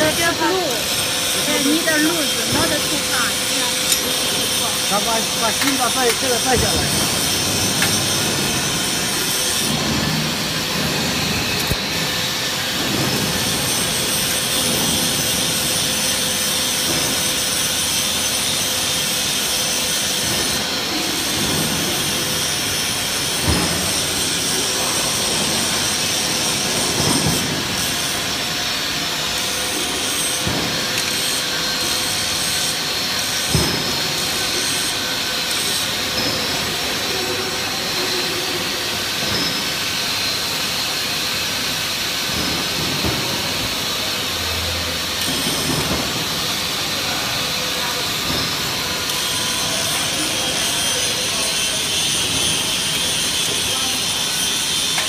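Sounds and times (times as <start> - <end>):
factory machinery hiss and hum: 0.0 - 55.0.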